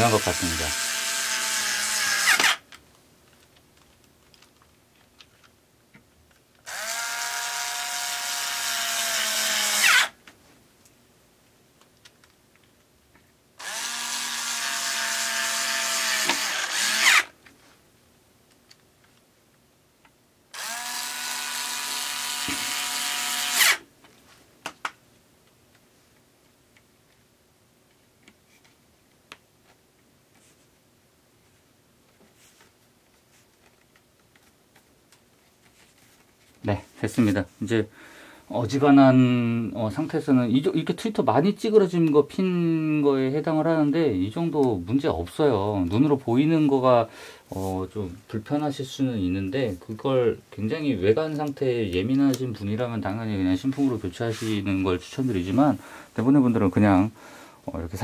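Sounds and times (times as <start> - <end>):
electric screwdriver motor whining: 0.0 - 2.6, 6.7 - 10.1, 13.6 - 17.3, 20.6 - 23.8.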